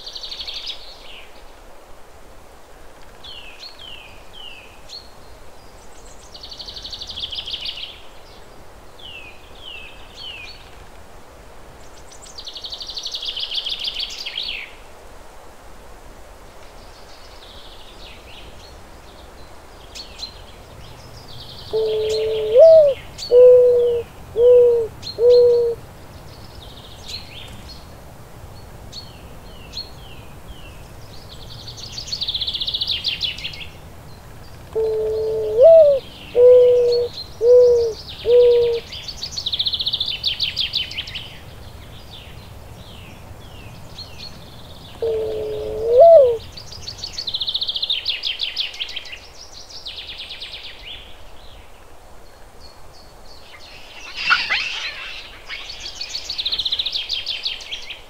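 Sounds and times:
birds chirping and trilling: 19.9 - 27.8, 34.4 - 47.7, 53.4 - 58.0
dove cooing: 21.6 - 25.8, 34.7 - 38.8, 45.0 - 46.4.

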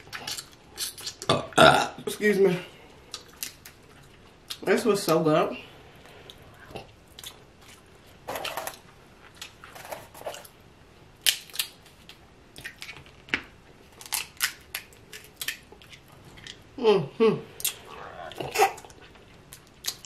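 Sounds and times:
person chewing and smacking: 0.0 - 1.6, 3.0 - 5.2, 6.1 - 9.7, 11.2 - 16.7, 17.6 - 20.0.

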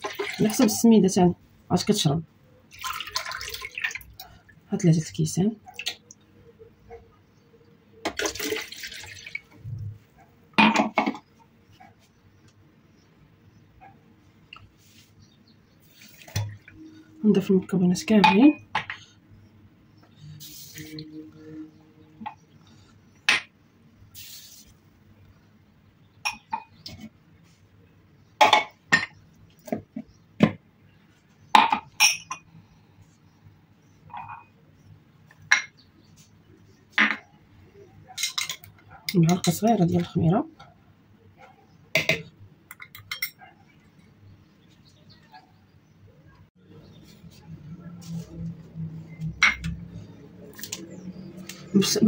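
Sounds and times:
water pouring into plastic jug: 0.0 - 0.8, 2.7 - 4.2, 8.1 - 9.5
short soft hiss: 24.2 - 24.7.

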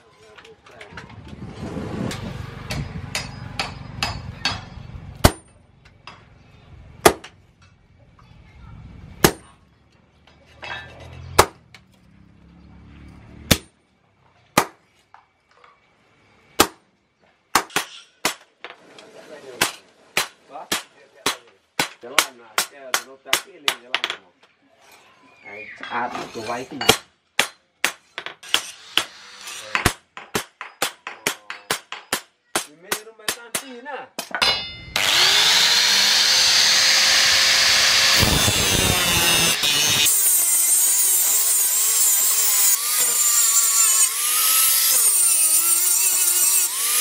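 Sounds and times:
hammer clanging on anvil: 2.7 - 6.2, 28.2 - 35.0.

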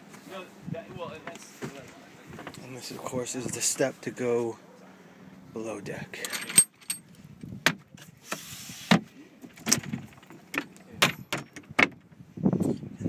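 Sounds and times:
latch and door knocks and clicks: 9.5 - 12.1.

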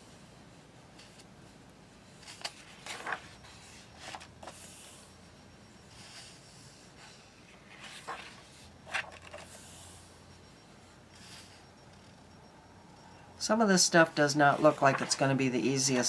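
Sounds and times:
paper pages being turned: 2.2 - 5.0, 7.5 - 9.6, 14.6 - 15.3.

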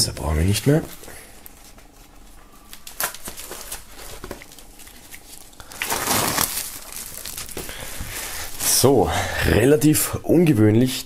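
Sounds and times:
plastic film crinkling: 0.7 - 9.0.

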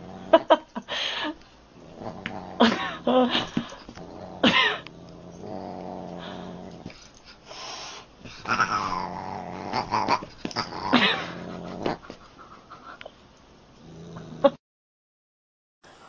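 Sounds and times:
cat and dog growling and yowling: 0.0 - 0.6, 1.8 - 7.1, 8.2 - 12.3.

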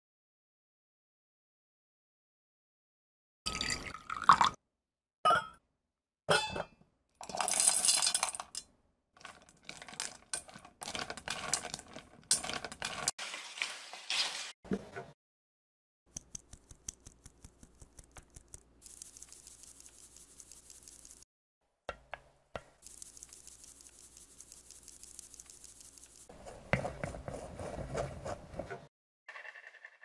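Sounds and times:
spoon scraping through mesh sieve: 16.5 - 21.2, 22.8 - 28.6.

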